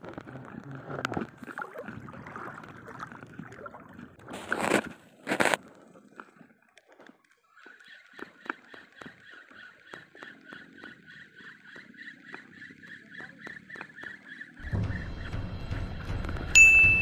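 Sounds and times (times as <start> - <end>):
sea water sloshing and gurgling: 0.0 - 13.3
water splashes: 0.0 - 14.6.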